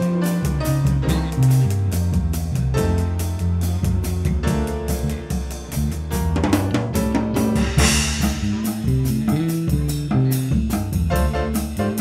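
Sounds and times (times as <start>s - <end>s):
bass: 0.0s - 12.0s
drum kit groove: 0.0s - 12.0s
piano: 0.0s - 12.0s
cymbal crash: 7.5s - 9.2s.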